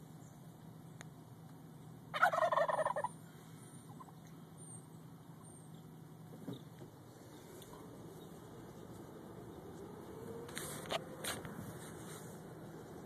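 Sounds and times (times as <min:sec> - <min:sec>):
turkey gobbling: 0:02.1 - 0:03.2, 0:03.9 - 0:04.2
car humming: 0:03.0 - 0:13.0.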